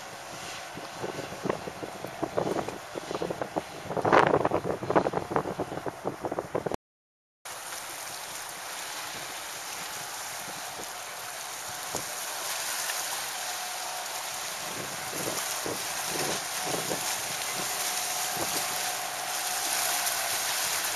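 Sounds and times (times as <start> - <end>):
rushing hiss of wind and water: 0.0 - 6.8, 7.5 - 20.9
wind gusts buffeting microphone: 0.0 - 6.8, 14.3 - 20.9.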